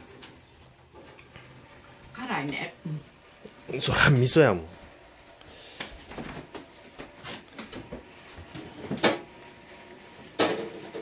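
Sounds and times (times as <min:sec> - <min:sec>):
light knocks and clicks in kitchen: 0:05.3 - 0:09.4.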